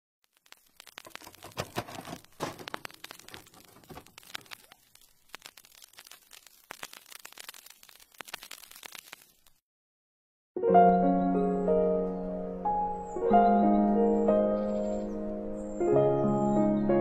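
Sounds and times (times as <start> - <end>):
faint crackling and clicking: 0.2 - 9.6.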